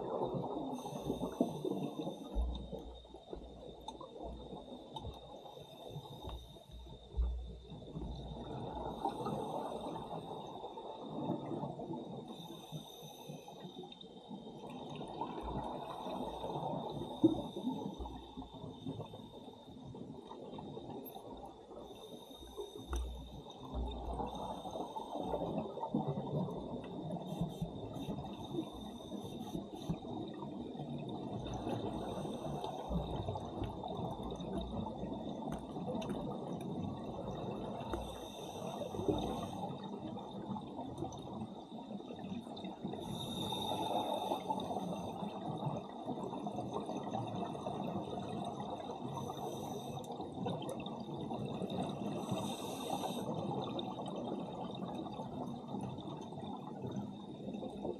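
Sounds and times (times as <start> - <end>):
regulator bubbles gurgling underwater: 0.0 - 57.9
faint high whine: 15.5 - 39.7.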